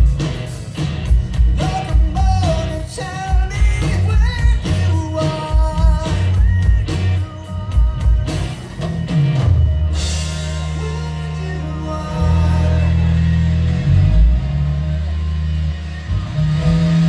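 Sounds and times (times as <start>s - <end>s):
bass slide: 0.0s - 17.0s
live rock band playing: 0.0s - 17.0s
person singing: 1.5s - 8.8s, 9.7s - 15.2s.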